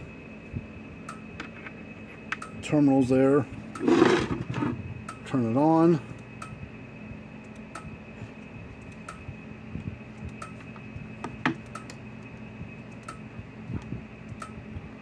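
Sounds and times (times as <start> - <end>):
electric fence charger ticking: 1.0 - 1.3, 2.3 - 2.7, 5.0 - 5.4, 6.1 - 6.6, 7.4 - 8.0, 8.7 - 9.3, 10.1 - 14.6.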